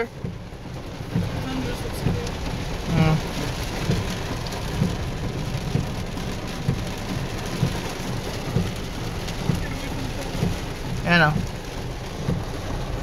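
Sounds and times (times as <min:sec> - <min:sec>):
heavy rain on a car: 0:00.0 - 0:13.0
soft low thump: 0:01.1 - 0:13.0.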